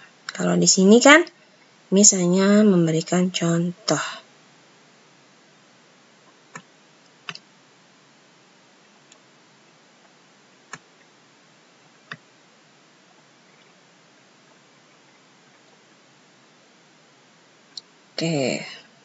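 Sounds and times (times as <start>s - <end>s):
faint room hiss: 0.0s - 19.0s
computer mouse clicking: 6.5s - 7.5s.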